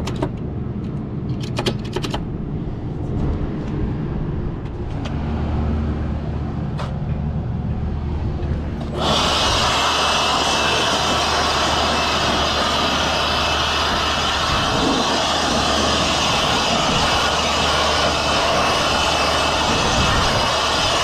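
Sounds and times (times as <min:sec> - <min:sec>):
low rumble of rooftop machinery: 0:00.0 - 0:21.0
cordless blower whining: 0:08.8 - 0:21.0.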